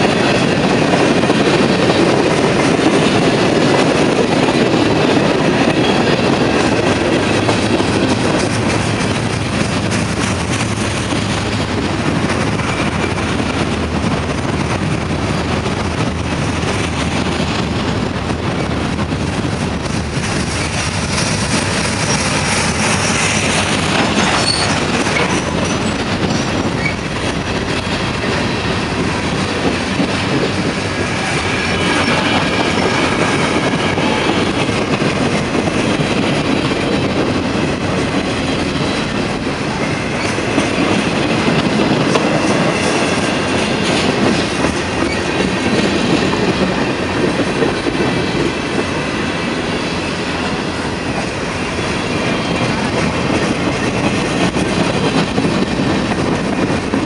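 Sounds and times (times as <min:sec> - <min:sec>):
train wheels rumbling and clacking: 0:00.0 - 0:57.0
high wheel squeal: 0:24.2 - 0:27.0.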